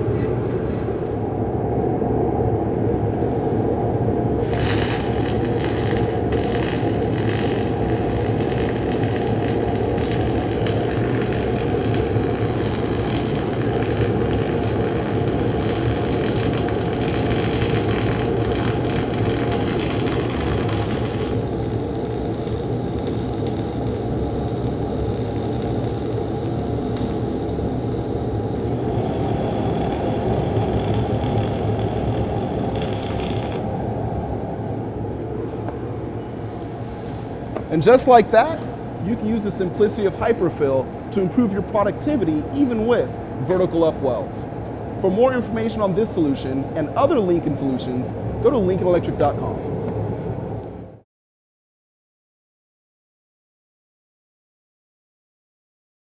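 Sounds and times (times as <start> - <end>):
low hum: 0.0 - 37.7
welding arc crackling: 4.3 - 33.8.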